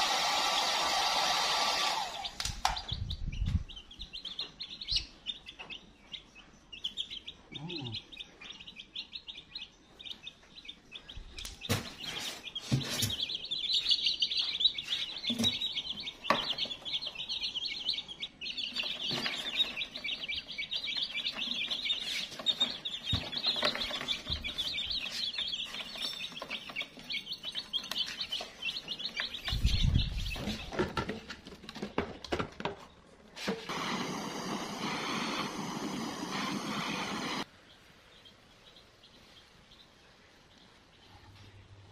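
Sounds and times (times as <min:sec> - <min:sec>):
chicks peeping: 0:00.0 - 0:41.9
steady hiss: 0:33.5 - 0:37.5.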